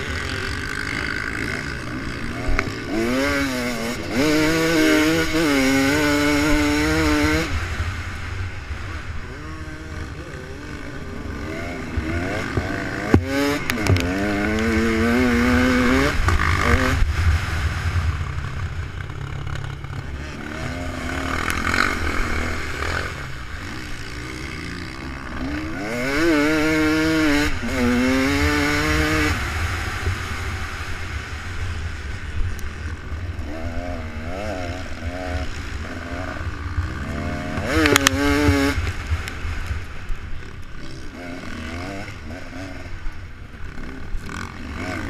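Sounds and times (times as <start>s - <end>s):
vehicle engines revving: 0.0s - 45.0s
low rumble: 6.6s - 25.4s.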